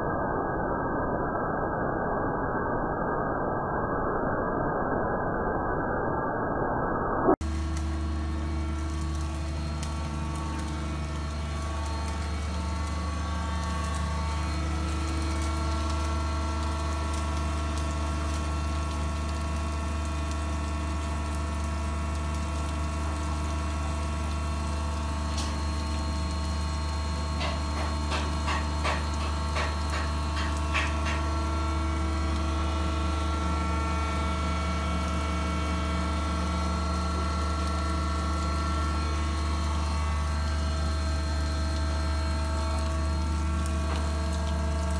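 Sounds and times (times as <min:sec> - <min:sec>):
hydraulic power pack humming: 0:07.4 - 0:19.4.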